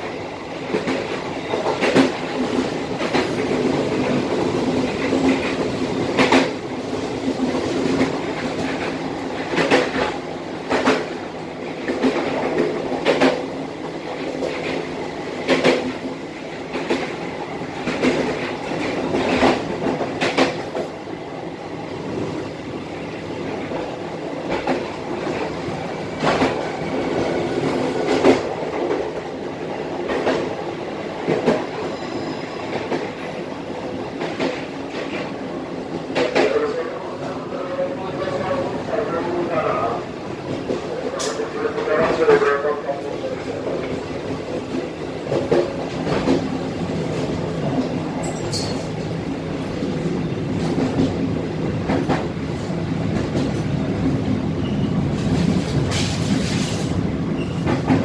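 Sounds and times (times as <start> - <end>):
clickety-clack over rail joints: 0.0 - 21.0, 23.5 - 32.0, 32.6 - 58.0
train wheels rumbling on rails: 0.0 - 58.0.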